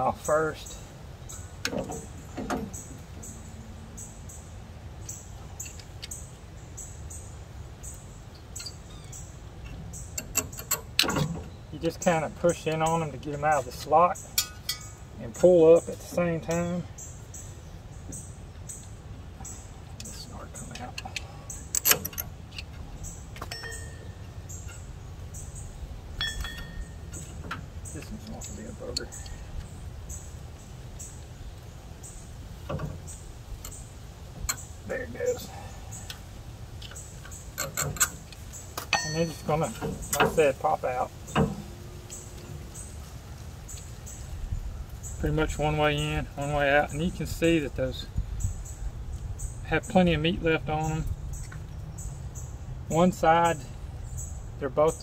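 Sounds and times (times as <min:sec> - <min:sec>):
bird chirping: 0:00.0 - 0:55.0
low steady hum: 0:00.0 - 0:55.0
sharp metal clicks: 0:09.6 - 0:11.6, 0:18.7 - 0:30.2, 0:36.8 - 0:40.6.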